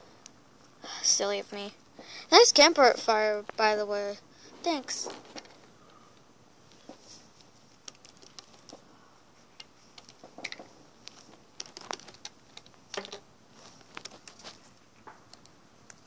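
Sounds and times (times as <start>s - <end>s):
plastic toy figures clicking: 7.8s - 8.8s, 9.6s - 13.2s.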